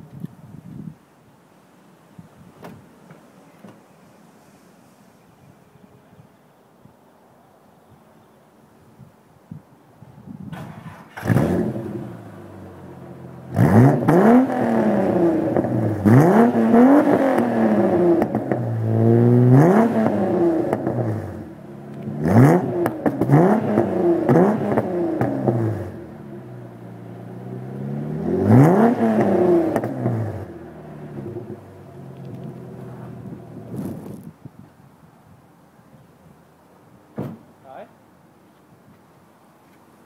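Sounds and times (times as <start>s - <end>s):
car engine idling and revving: 10.6s - 34.3s.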